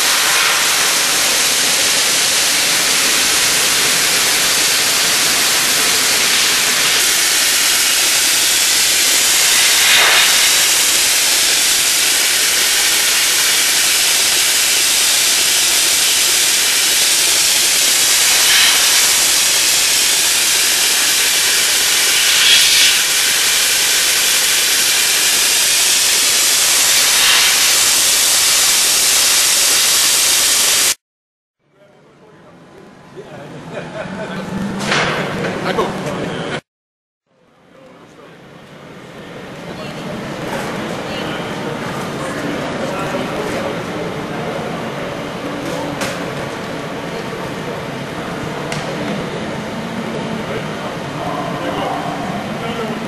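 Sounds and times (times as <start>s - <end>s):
dry ice blaster hissing: 0.0s - 31.0s.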